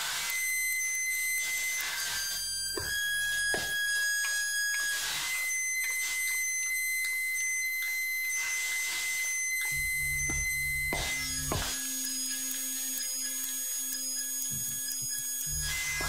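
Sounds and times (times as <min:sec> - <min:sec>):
high-pitched electronic tones: 0:00.1 - 0:16.0
low buzzing drone: 0:09.5 - 0:16.0.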